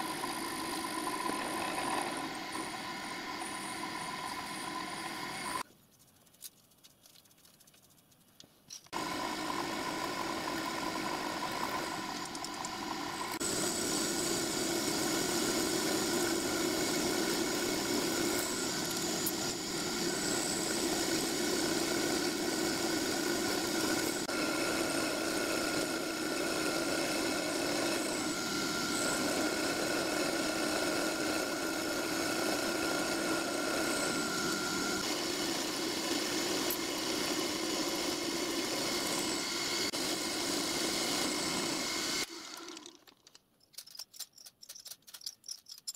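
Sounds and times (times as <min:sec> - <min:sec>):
milling machine cutting metal: 0:09.0 - 0:43.0.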